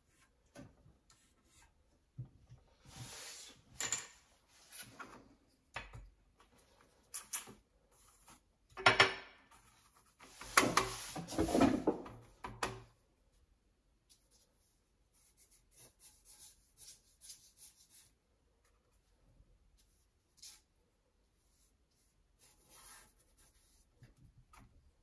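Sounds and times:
brush strokes on paper: 0:02.7 - 0:03.6, 0:14.0 - 0:18.2, 0:19.7 - 0:23.9.

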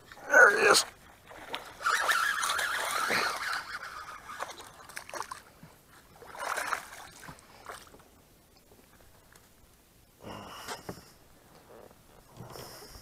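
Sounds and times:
fish splashing in water: 0:01.3 - 0:05.5.

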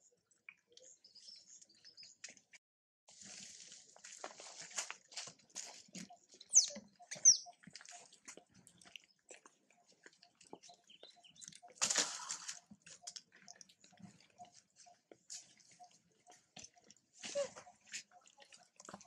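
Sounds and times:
rustling scrape: 0:03.1 - 0:05.0
high-pitched animal squeaks: 0:06.5 - 0:08.0.

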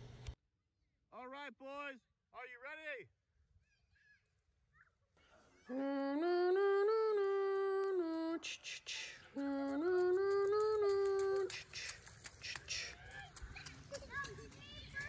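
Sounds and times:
person humming: 0:05.7 - 0:13.0
feet splashing through puddle: 0:09.7 - 0:15.0.

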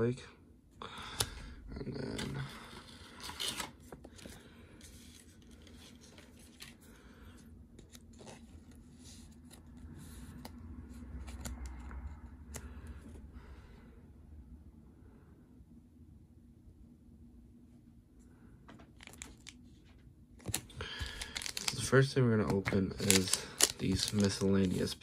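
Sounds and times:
plastic card sleeve rustling: 0:01.9 - 0:13.1, 0:18.9 - 0:25.0.

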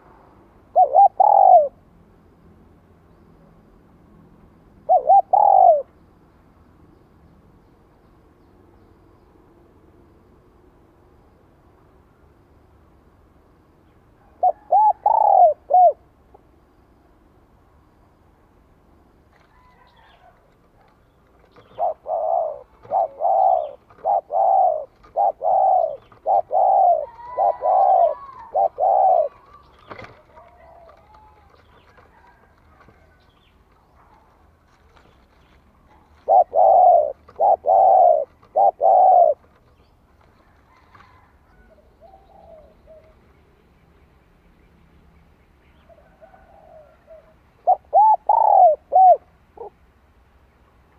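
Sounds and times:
dove cooing: 0:00.7 - 0:01.8, 0:04.8 - 0:05.9, 0:14.2 - 0:16.1, 0:19.6 - 0:33.3, 0:35.8 - 0:39.8, 0:40.4 - 0:43.2, 0:45.9 - 0:49.8
birds chirping: 0:19.6 - 0:40.2.

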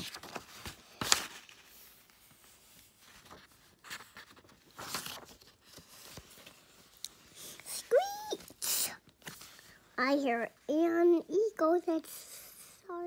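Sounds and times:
book pages turning: 0:00.0 - 0:09.8.

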